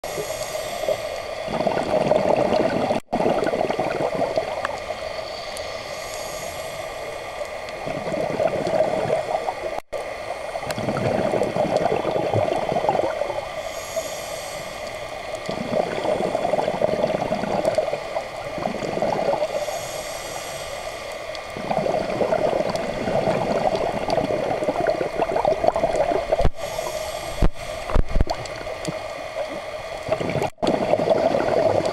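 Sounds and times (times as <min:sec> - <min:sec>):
regulator hiss of inhaled air: 0:00.0 - 0:01.6, 0:04.8 - 0:07.8, 0:13.1 - 0:18.5, 0:19.4 - 0:21.6, 0:26.4 - 0:28.2
gurgle of exhaled bubbles: 0:01.4 - 0:04.9, 0:07.7 - 0:09.8, 0:10.6 - 0:13.5, 0:15.4 - 0:19.6, 0:21.5 - 0:31.9.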